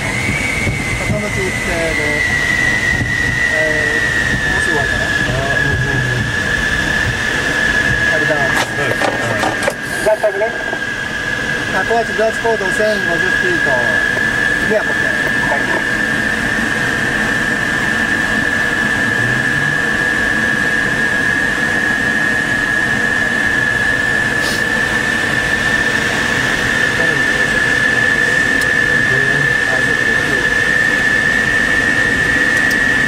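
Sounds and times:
airflow rushing in cockpit: 0.0 - 33.0
constant high tone: 0.0 - 33.0.

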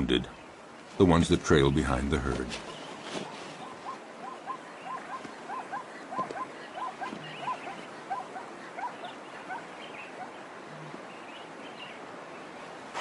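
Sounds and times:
steady background hiss: 0.0 - 13.0
animals yelping: 3.5 - 11.1.

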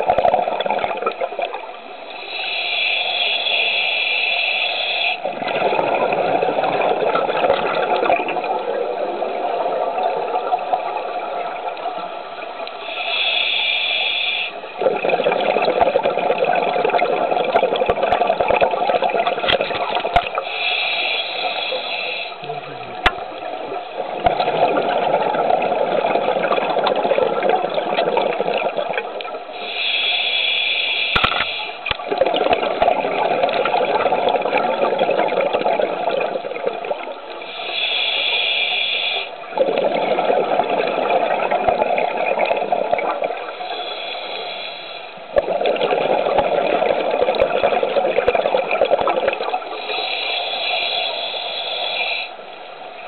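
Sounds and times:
regulator hissing inhalations: 2.1 - 5.3, 12.7 - 14.6, 20.3 - 22.6, 29.5 - 31.9, 37.4 - 39.4, 43.5 - 45.3, 49.6 - 52.5
scuba regulator exhaled bubbles: 5.2 - 11.0, 24.0 - 29.3, 39.5 - 43.8, 45.3 - 50.1.

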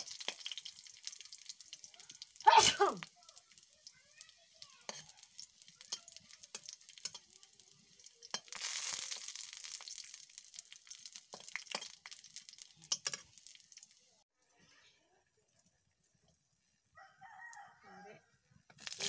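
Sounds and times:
fish frying in hot oil: 0.0 - 14.2, 18.7 - 19.0
loud sizzle: 0.0 - 14.2, 18.7 - 19.0.

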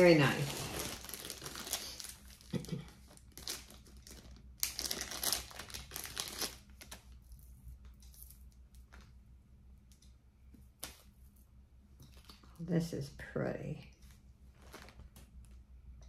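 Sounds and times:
packaging bags crinkling: 0.0 - 7.1, 14.6 - 15.2.

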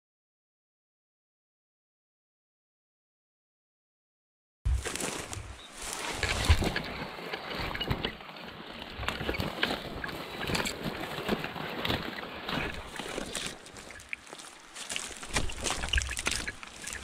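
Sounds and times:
footsteps through dry grass: 4.7 - 17.0.

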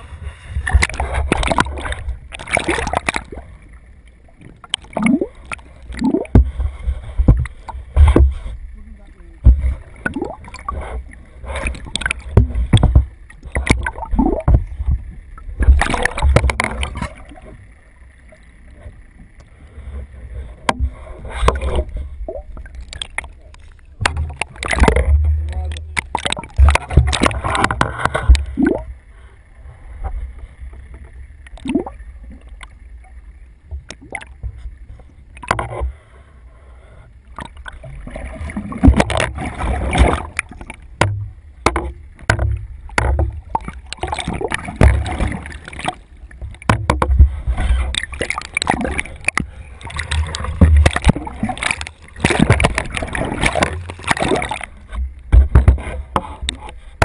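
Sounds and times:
muffled underwater gurgling: 0.0 - 30.6
knocks and splashes: 0.5 - 3.8, 4.4 - 8.6, 9.2 - 17.7, 20.4 - 28.9, 30.8 - 32.8, 33.7 - 36.0, 37.3 - 57.0
low rumble: 23.4 - 33.8.

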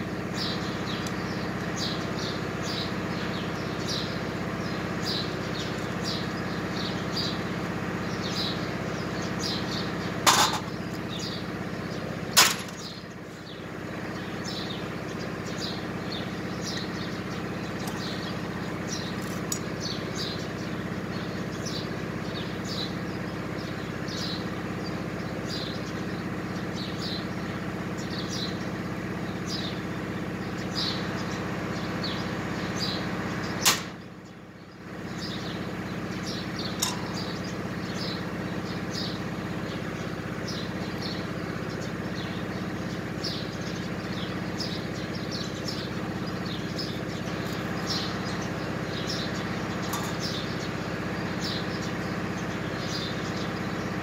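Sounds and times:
small birds chirping: 0.0 - 54.0
sharp click: 33.6 - 34.0
machine humming: 45.4 - 54.0.

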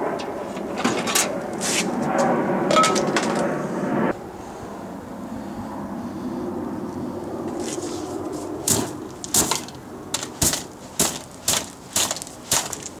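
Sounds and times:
steady low hum: 0.0 - 13.0
sharp cracks and pops: 8.7 - 13.0.

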